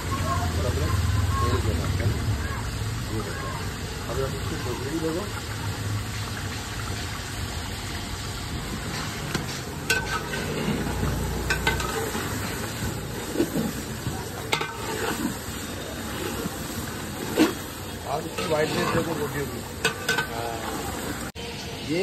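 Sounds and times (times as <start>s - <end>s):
chicken sizzling in oil: 0.0s - 22.0s
ladle scraping through food: 8.8s - 20.8s.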